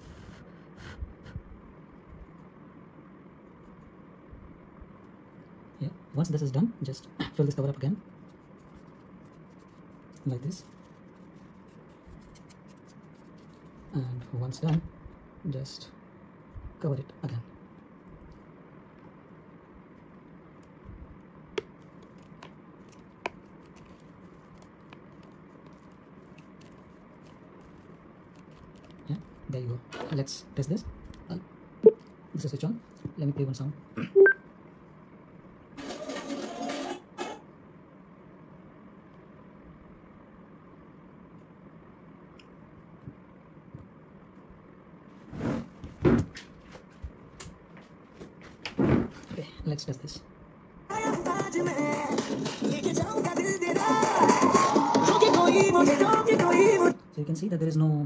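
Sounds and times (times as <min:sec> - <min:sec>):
room hum: 0:00.0 - 0:58.0.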